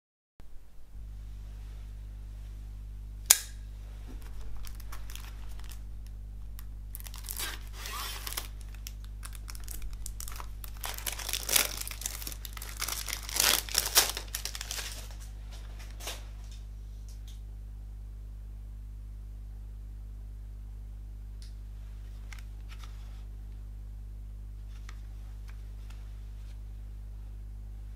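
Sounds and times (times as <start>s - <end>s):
steady low hum: 0.4s - 27.9s
sharp click: 3.3s - 3.6s
plastic wrap crinkling and tearing: 4.1s - 16.2s.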